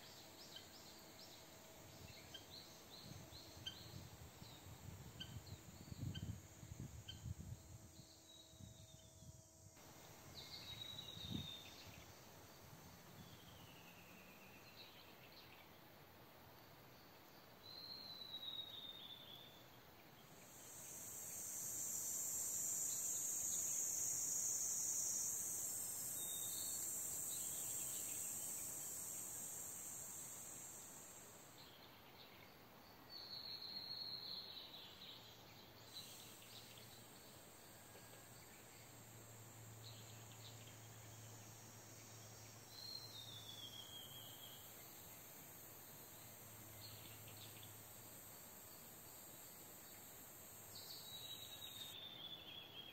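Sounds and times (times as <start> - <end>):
high-pitched insect drone: 20.4 - 31.8, 35.9 - 52.0.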